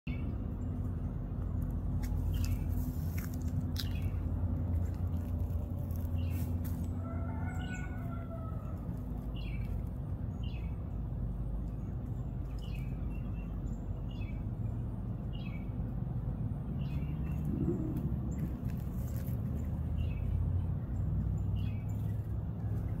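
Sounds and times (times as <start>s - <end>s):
birds chirping: 0.1s - 23.0s
low rumble: 0.1s - 23.0s
rooster crowing: 6.8s - 9.0s.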